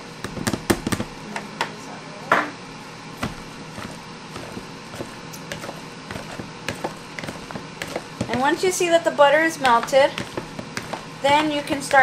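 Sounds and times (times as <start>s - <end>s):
potatoes squishing: 3.2s - 8.6s, 9.6s - 12.0s.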